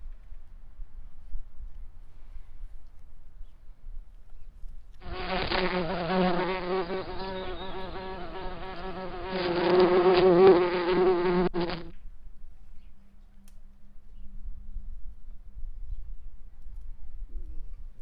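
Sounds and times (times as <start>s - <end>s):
fly buzzing: 5.0s - 11.9s.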